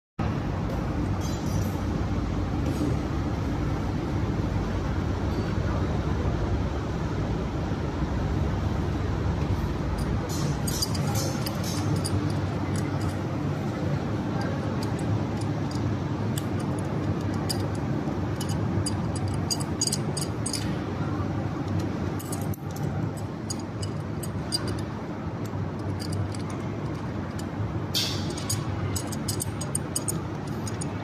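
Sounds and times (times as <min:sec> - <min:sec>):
wrench clinking on metal: 0:10.0 - 0:20.8, 0:21.7 - 0:31.0.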